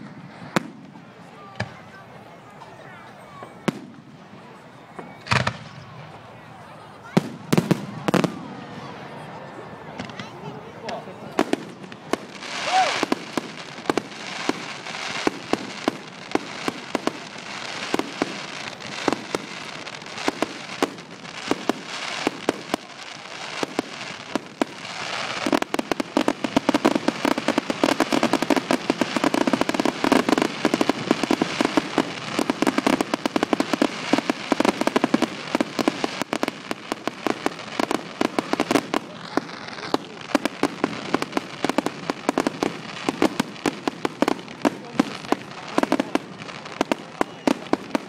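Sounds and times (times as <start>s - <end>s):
fireworks bangs: 0.0s - 2.1s, 3.1s - 48.0s.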